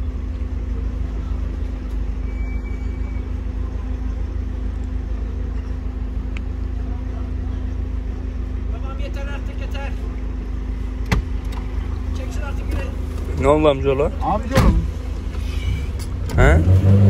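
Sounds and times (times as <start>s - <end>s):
car engine idling: 0.0s - 17.0s
short high beep: 2.2s - 3.4s.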